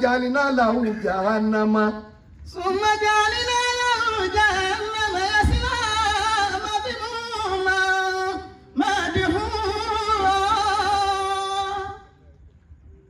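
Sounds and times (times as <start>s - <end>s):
man chanting melodically: 0.0s - 12.2s.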